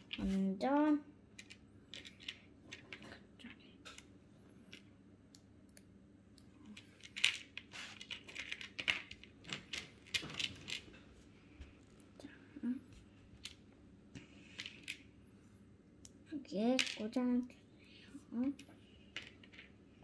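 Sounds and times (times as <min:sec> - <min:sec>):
plastic pieces clicking and rattling: 0:01.4 - 0:03.2, 0:06.6 - 0:11.0, 0:16.7 - 0:17.2, 0:18.5 - 0:19.8.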